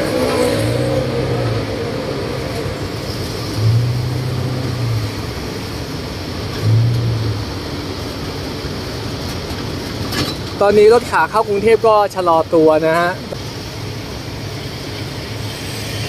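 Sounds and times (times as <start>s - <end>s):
low hum: 0.0s - 9.6s
road and wind noise: 0.0s - 16.0s
truck engine running: 0.0s - 16.0s.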